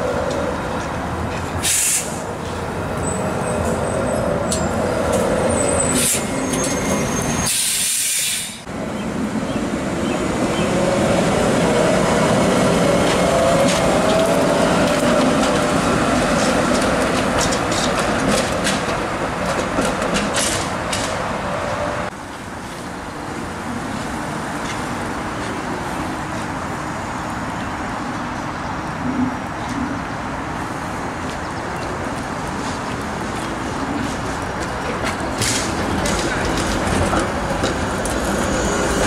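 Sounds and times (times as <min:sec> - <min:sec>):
streetcar rumble: 0:00.0 - 0:39.0
streetcar whine: 0:00.0 - 0:39.0
streetcar wheels clicking over rail joints: 0:11.6 - 0:21.3, 0:31.2 - 0:39.0.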